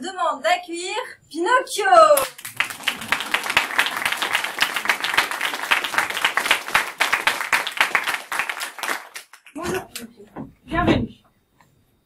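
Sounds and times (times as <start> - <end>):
audience applauding: 2.2 - 9.6.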